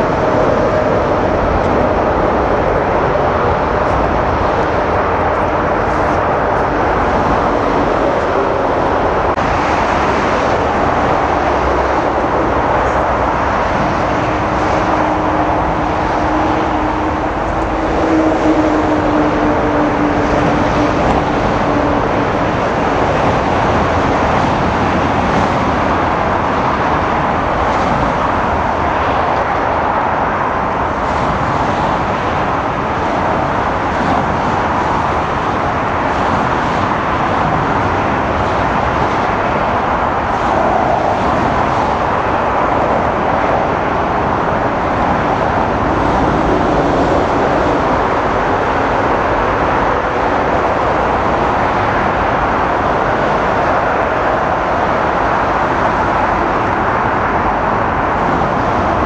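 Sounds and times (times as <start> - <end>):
jet engines roaring: 0.0 - 59.0.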